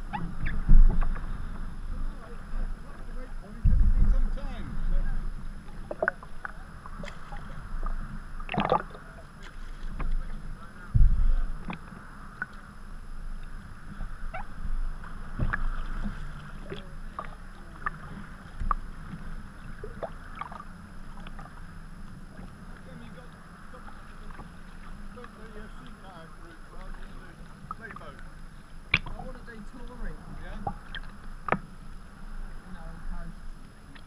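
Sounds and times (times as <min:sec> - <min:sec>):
water lapping around hull: 0:00.0 - 0:34.0
low thump: 0:00.1 - 0:02.1, 0:03.6 - 0:06.6, 0:09.9 - 0:11.8
paddle splashing in water: 0:03.5 - 0:32.0.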